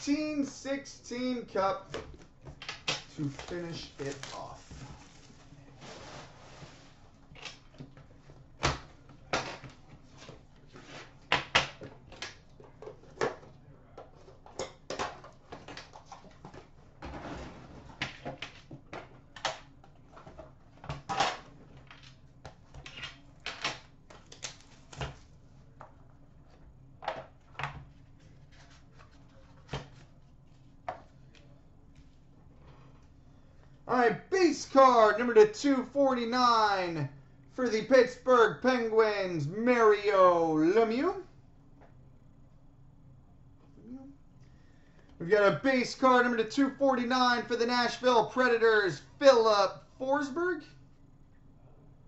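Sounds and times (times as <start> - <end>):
packaging rustling: 3.1 - 7.0.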